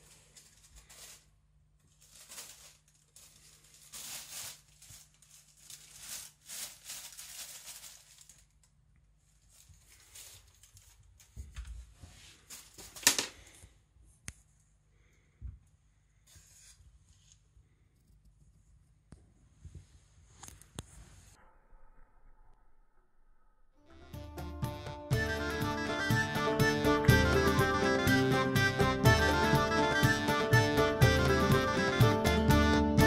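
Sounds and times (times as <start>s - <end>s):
plastic bag rustling and crinkling: 0.0s - 13.5s.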